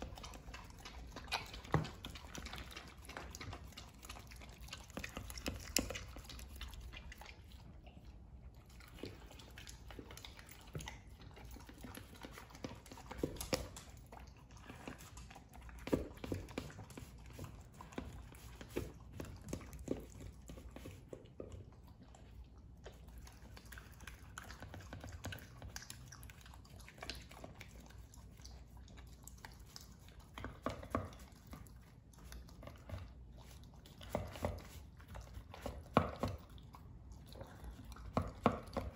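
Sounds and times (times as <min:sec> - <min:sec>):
dog chewing and crunching: 0:00.0 - 0:38.9.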